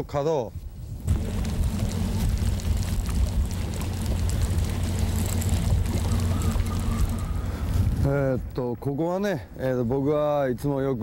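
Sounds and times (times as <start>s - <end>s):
rushing wind noise: 0.5s - 8.7s
outboard motor humming: 1.0s - 8.0s.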